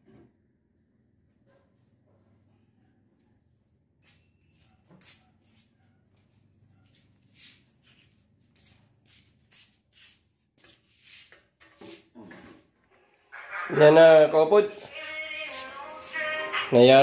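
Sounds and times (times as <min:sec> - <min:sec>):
faint brushing strokes: 0:04.9 - 0:12.0, 0:14.7 - 0:16.4.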